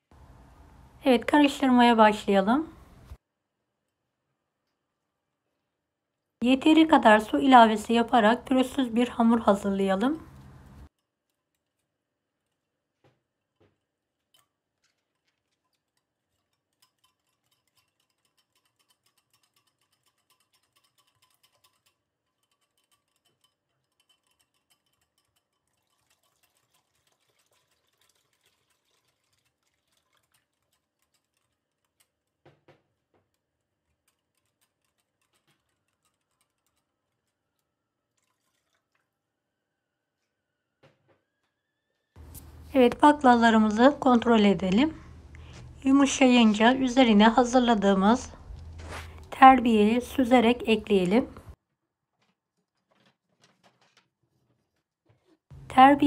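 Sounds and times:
wire whisk clicking on glass bowl: 0:15.9 - 0:26.8, 0:33.9 - 0:37.6.

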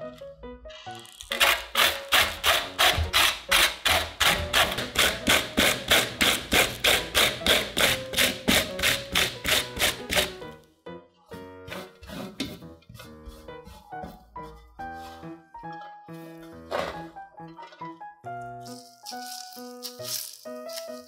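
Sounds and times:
cabbage rasping on grater: 0:01.1 - 0:10.4.

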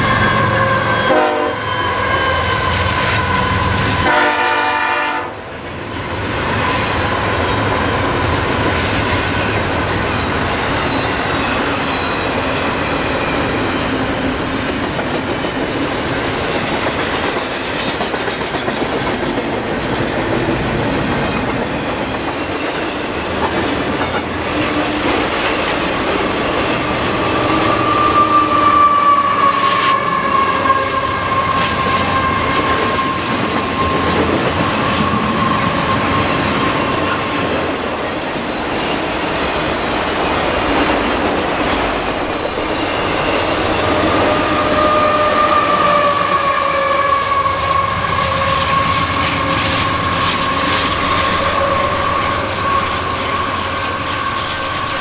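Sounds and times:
high-pitched wheel squeal: 0:00.0 - 0:04.0, 0:24.6 - 0:37.4, 0:42.7 - 0:55.0
freight train wheels on rails: 0:00.0 - 0:55.0.

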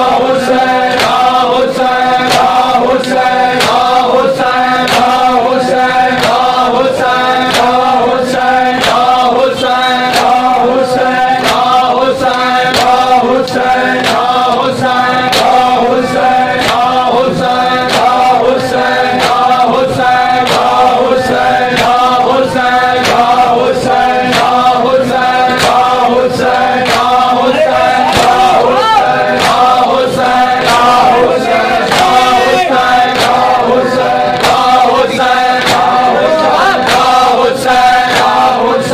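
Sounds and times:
men chanting a lament: 0:00.0 - 0:38.9
hands slapping chests: 0:00.9 - 0:01.4, 0:02.2 - 0:04.0, 0:04.8 - 0:05.3, 0:08.8 - 0:09.2, 0:11.4 - 0:14.4, 0:15.3 - 0:15.7, 0:16.6 - 0:17.0, 0:26.5 - 0:27.3, 0:27.9 - 0:31.2, 0:31.8 - 0:33.6, 0:34.3 - 0:37.3.

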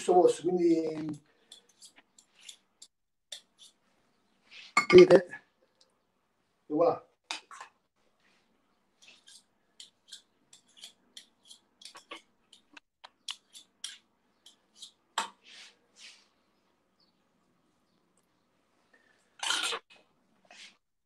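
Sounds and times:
metal spoons clinking and scraping: 0:01.4 - 0:03.8, 0:09.0 - 0:15.0.

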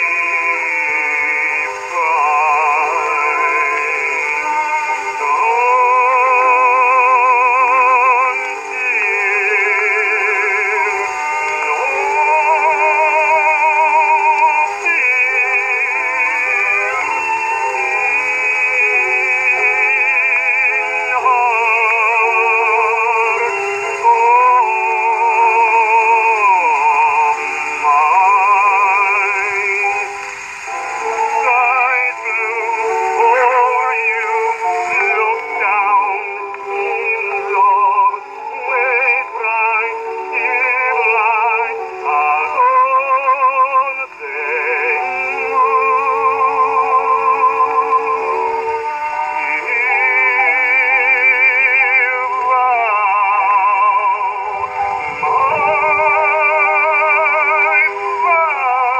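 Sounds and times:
baritone singing: 0:00.0 - 0:58.9
piano accompaniment: 0:00.0 - 0:58.9
saxophone: 0:00.0 - 0:58.9
violin: 0:00.0 - 0:58.9.

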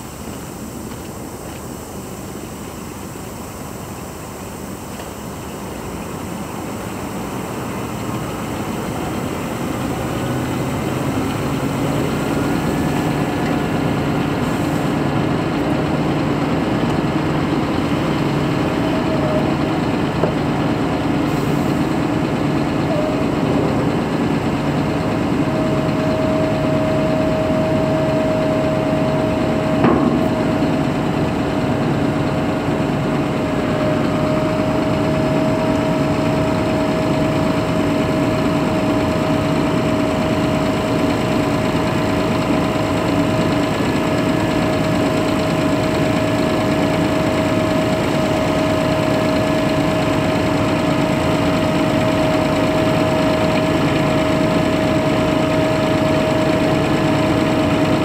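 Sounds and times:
truck engine and hydraulics hum: 0:00.0 - 0:58.0
sharp knock: 0:29.8 - 0:30.7.

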